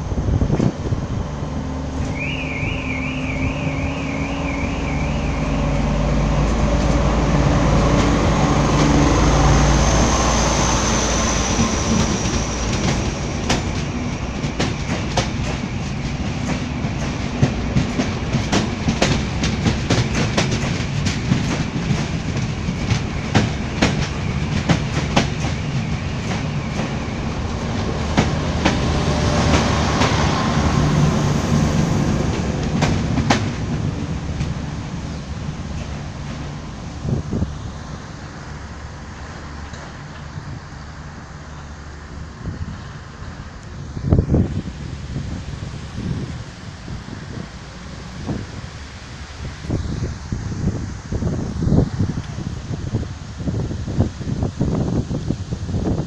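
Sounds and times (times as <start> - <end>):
passenger train rumble: 0.0 - 56.0
wheels clacking over rail joints: 3.5 - 40.5.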